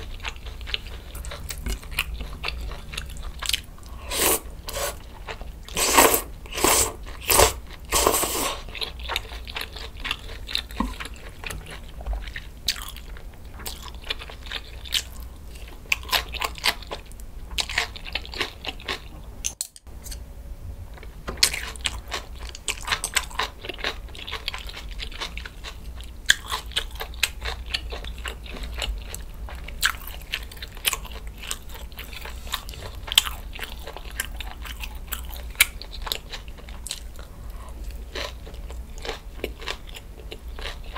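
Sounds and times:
chewing with crisp crunches: 0.0 - 20.2, 21.0 - 40.9
noodles slurped: 3.9 - 8.7.

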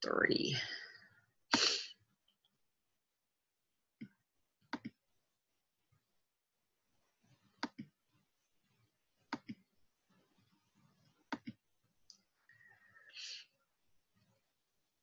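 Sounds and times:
computer mouse clicks: 4.0 - 5.0, 7.6 - 8.0, 9.3 - 9.6, 11.3 - 12.3.

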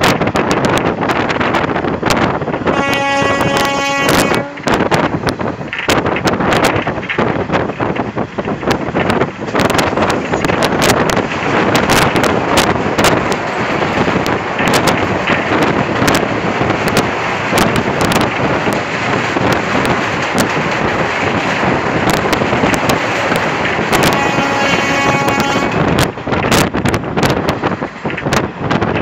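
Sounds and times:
train wind rush and rumble: 0.0 - 29.0
wheels clacking over rail joints: 0.0 - 29.0.

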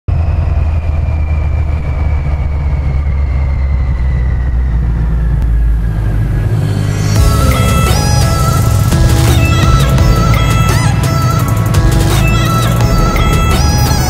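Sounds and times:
high whine falling in pitch: 0.1 - 11.1
motorcycle engine rumbling: 0.1 - 14.0.

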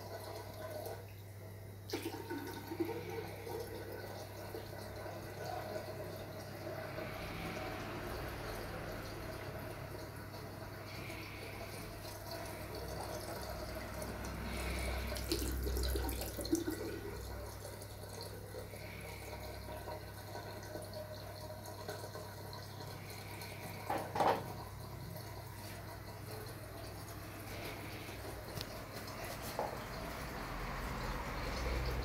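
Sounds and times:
tap water running into sink: 11.4 - 32.0.

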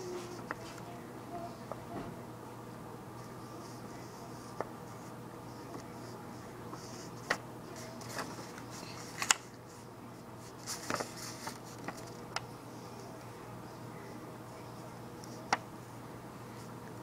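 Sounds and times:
steady low hum: 0.0 - 17.0
pencil tapping paper: 0.1 - 0.8, 3.2 - 9.5
paper rustling: 3.2 - 9.8, 10.4 - 13.3.

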